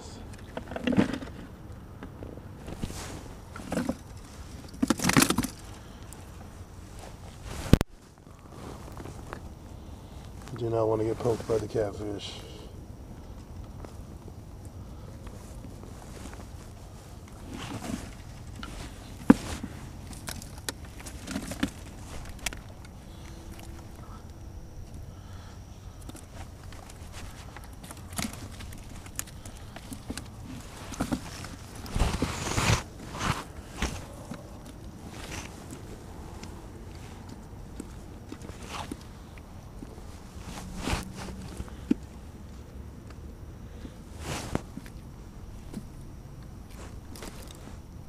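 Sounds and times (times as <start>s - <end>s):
mesh rustling: 2.6s - 11.6s, 14.9s - 42.6s
mesh bag rustling and knocking: 15.8s - 22.9s.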